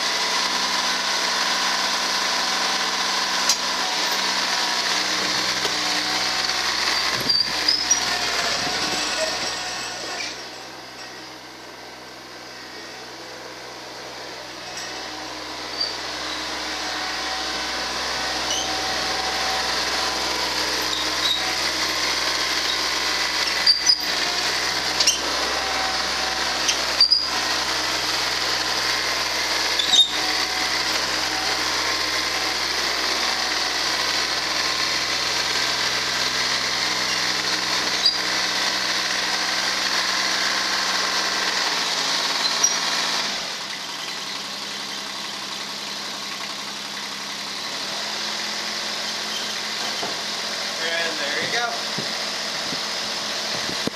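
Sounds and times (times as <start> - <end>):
tractor diesel engine running: 0.0 - 53.9.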